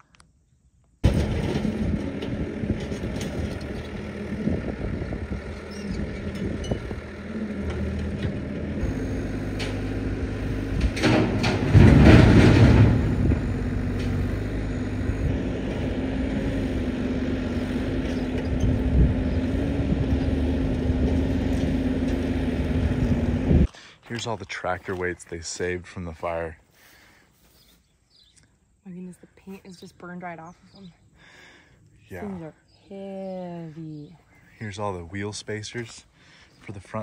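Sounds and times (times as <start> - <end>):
heavy machinery engine running: 1.0 - 23.7.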